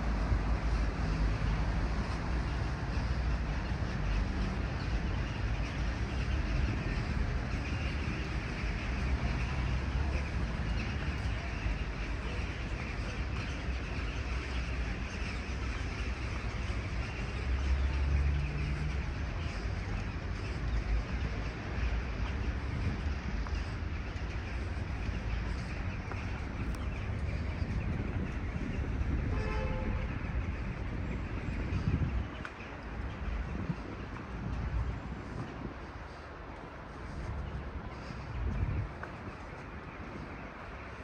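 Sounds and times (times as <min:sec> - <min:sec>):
street traffic rumble: 0:00.0 - 0:41.0.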